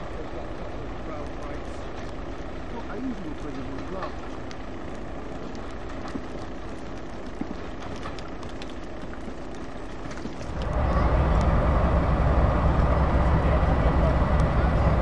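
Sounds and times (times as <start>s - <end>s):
distant diesel locomotive engine: 0.0s - 6.6s, 9.1s - 15.0s
loud diesel locomotive engine close: 10.4s - 15.0s.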